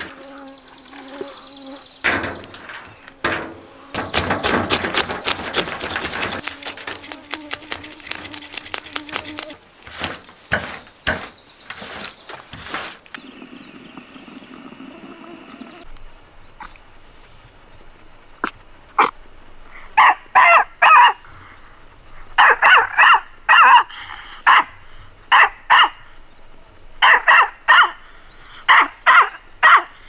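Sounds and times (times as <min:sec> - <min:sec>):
knife scraping fish scales: 0:04.8 - 0:13.1.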